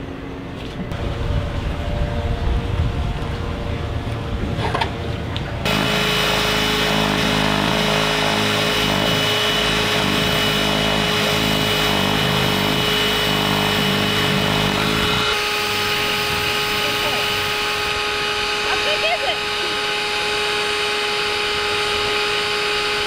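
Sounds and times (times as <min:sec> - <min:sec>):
cordless drill boring: 0:05.7 - 0:23.0
handheld vacuum running: 0:05.7 - 0:23.0.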